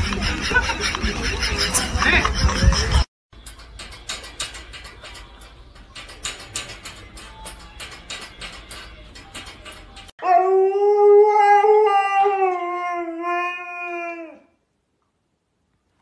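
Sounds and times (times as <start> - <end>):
metal bars and padlock rattling: 3.4 - 10.1
dog howling: 10.2 - 14.5.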